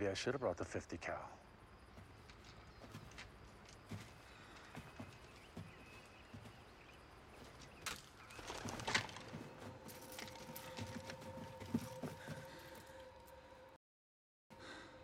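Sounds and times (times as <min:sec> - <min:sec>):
footsteps on forest floor: 0:01.9 - 0:13.0
brush rustling and crackling: 0:07.3 - 0:12.3.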